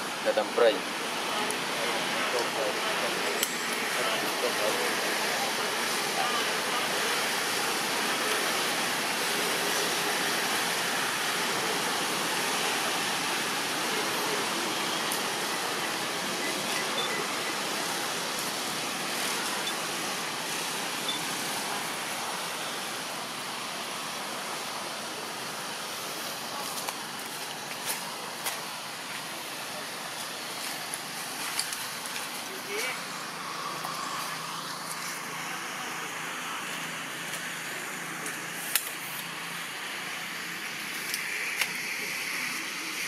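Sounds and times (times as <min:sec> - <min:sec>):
steady rushing noise: 0:00.0 - 0:43.0.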